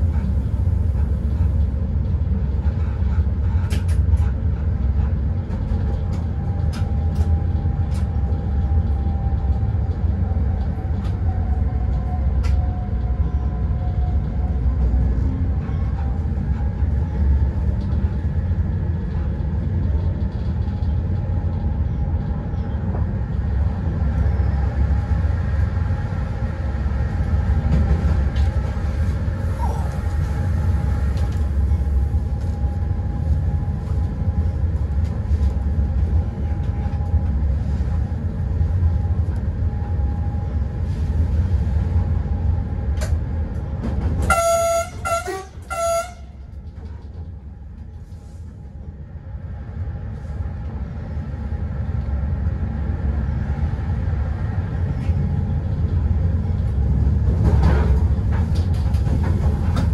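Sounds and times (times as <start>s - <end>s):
locomotive rumbling: 0.0s - 59.9s
train horn blasts: 44.2s - 46.5s.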